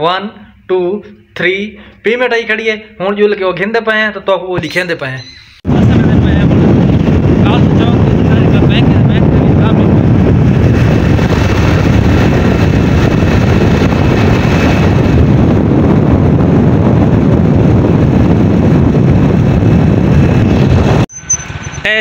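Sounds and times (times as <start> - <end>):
road and engine noise: 5.2 - 22.0
wind rush on microphone: 5.6 - 22.0.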